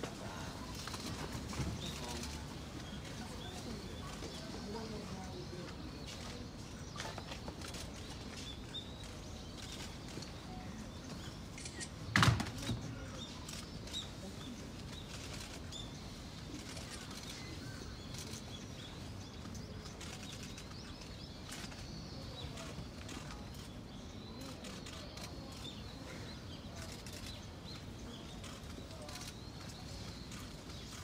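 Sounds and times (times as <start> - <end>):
sharp knock: 12.1 - 12.7.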